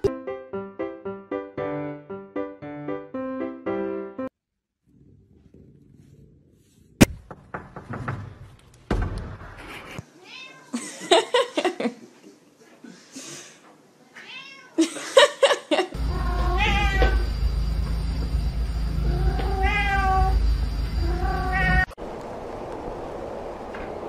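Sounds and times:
cats meowing: 10.2 - 10.8, 14.2 - 14.8, 16.0 - 17.3, 19.0 - 20.4, 21.0 - 22.0.

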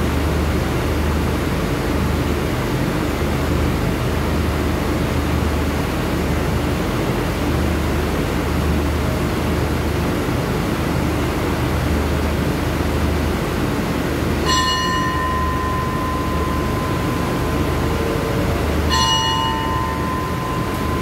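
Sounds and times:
diesel train idling: 12.4 - 21.0
metal bell ringing: 14.4 - 21.0.

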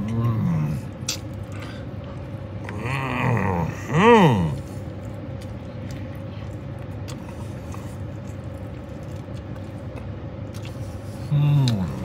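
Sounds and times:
chewing clicks: 4.5 - 10.8.

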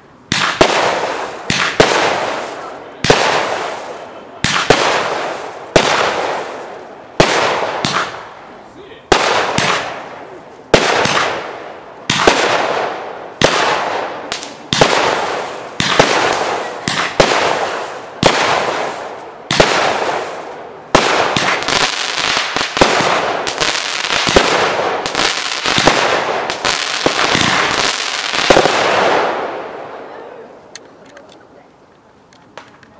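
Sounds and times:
firework bangs: 0.0 - 30.1.

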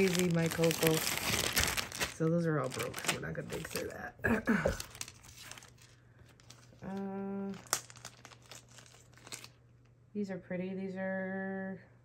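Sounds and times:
plastic bags crinkling: 0.0 - 9.6.

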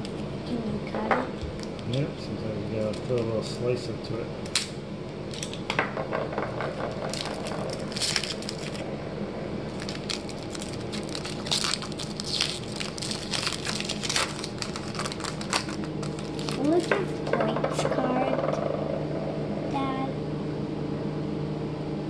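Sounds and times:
plastic wrapper crinkling: 7.1 - 8.8, 9.7 - 17.1.

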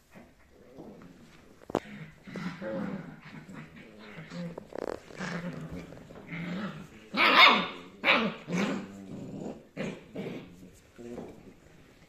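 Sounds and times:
puppies growling and barking: 0.2 - 10.9.

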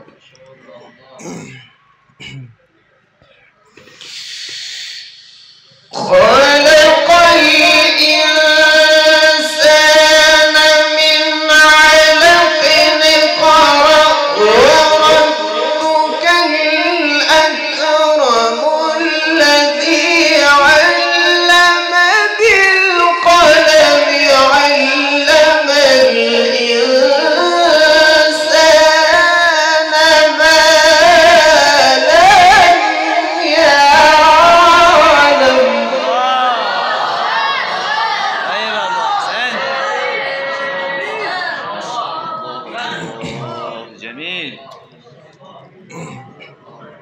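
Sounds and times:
man chanting recitation: 0.0 - 36.7, 38.4 - 44.6
short breaths: 3.3 - 5.8.

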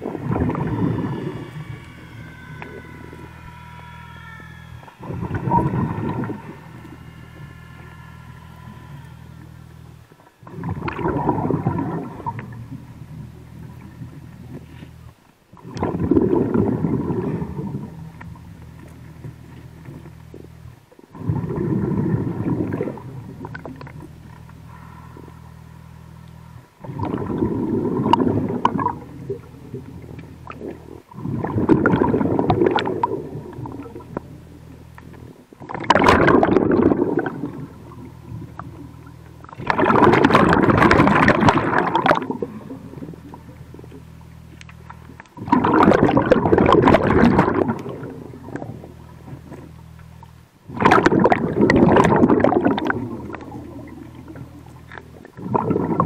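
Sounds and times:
bubbling underwater exhalations: 0.0 - 3.4, 4.8 - 14.7, 15.5 - 34.4, 35.1 - 44.2, 44.8 - 49.7, 50.7 - 56.0
low steady hum: 0.0 - 56.0.

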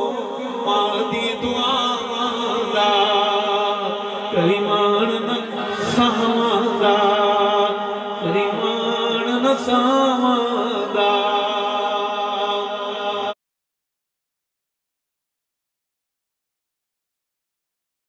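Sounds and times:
man chanting through loudspeakers: 0.0 - 13.4.

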